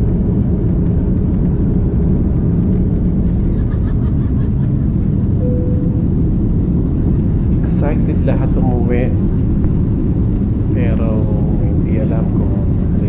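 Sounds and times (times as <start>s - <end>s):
jet engines and airflow rumble: 0.0s - 13.0s
brief steady tone: 5.4s - 6.4s.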